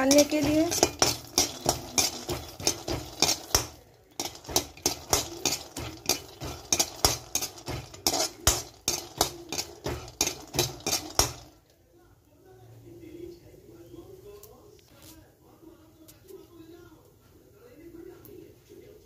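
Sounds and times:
spatula scraping and clinking pan: 0.0 - 11.6.

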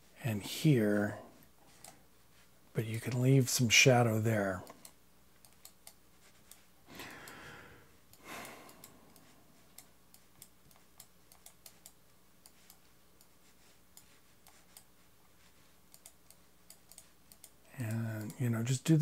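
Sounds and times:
mouse and keyboard clicking: 15.9 - 18.4.

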